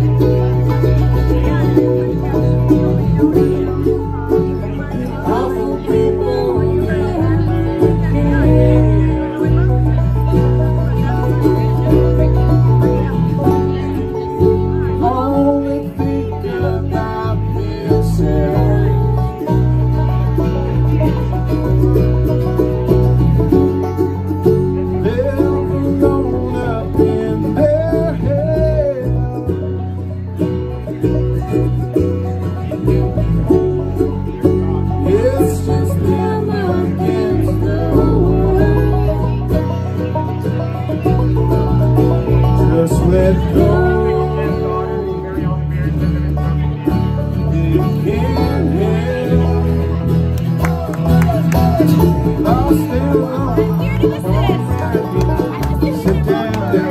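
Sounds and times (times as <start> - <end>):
bluegrass band playing: 0.0 - 56.9
person singing: 3.3 - 10.0, 14.7 - 19.6, 24.9 - 29.9, 34.6 - 39.8, 42.3 - 45.8, 47.3 - 56.9.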